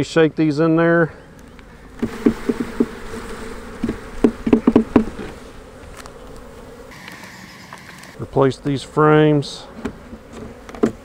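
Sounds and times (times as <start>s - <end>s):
honey bees buzzing: 0.0s - 11.0s
wooden frame knocking: 2.0s - 2.9s, 3.8s - 5.2s.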